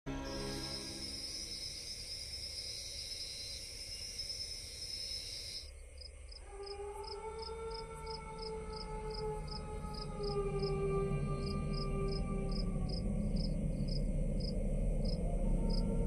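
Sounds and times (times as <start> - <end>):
insects droning and chirping: 0.1 - 16.0
low eerie tone: 5.6 - 16.0.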